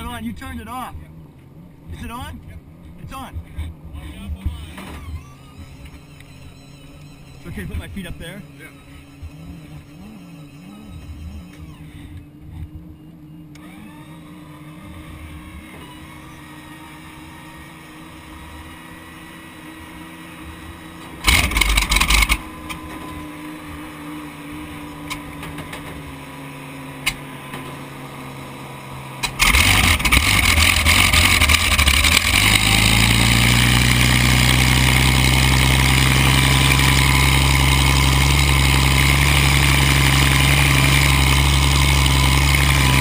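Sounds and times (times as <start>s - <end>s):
boat engine starting and running: 3.4s - 19.2s, 20.1s - 28.3s, 28.9s - 43.0s
loud engine burst: 21.2s - 22.6s, 29.2s - 43.0s.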